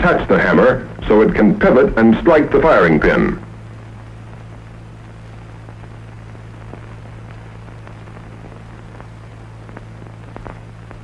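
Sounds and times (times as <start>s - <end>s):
low hum: 0.0s - 11.0s
faint clicks and pops: 3.5s - 11.0s.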